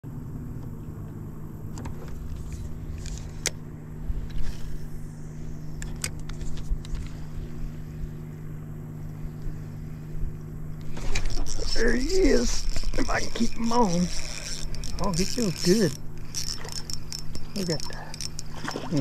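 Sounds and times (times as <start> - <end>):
electric motor humming: 0.1 - 19.0
fishing reel clicks: 11.2 - 19.0.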